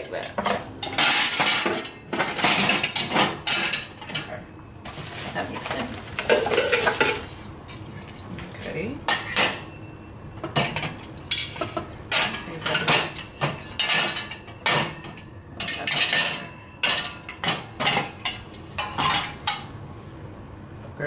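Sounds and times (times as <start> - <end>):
glass lids clinking on wire rack: 0.2 - 4.4, 5.7 - 7.2, 10.5 - 19.7.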